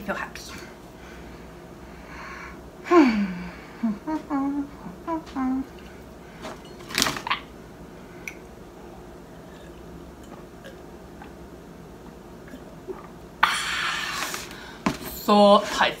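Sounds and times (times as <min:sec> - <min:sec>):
glass clinking: 0:06.6 - 0:07.1, 0:09.6 - 0:10.8
person sipping and swallowing: 0:08.2 - 0:13.2.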